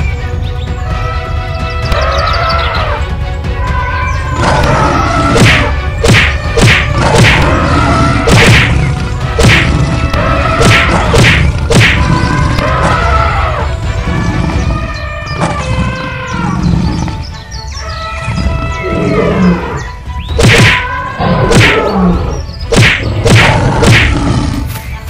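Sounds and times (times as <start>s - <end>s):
background music: 0.0s - 25.0s
cartoon punch whacks and thuds: 5.3s - 7.5s, 8.2s - 8.8s, 9.4s - 9.9s, 10.6s - 12.1s, 20.4s - 20.8s, 21.5s - 21.8s, 22.7s - 24.2s.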